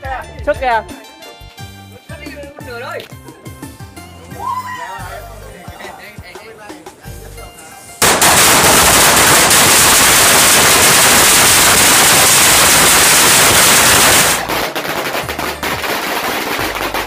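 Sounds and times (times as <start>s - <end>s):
firecrackers crackling and popping: 8.0s - 17.0s.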